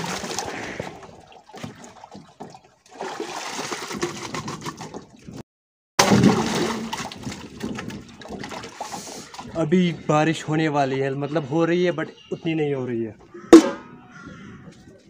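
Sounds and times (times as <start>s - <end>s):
ice and water pouring and splashing: 0.0s - 5.2s, 6.0s - 9.7s.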